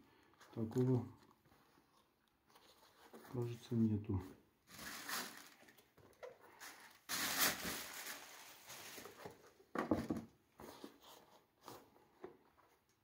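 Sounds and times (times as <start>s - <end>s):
tissue paper rustling: 4.7s - 9.5s.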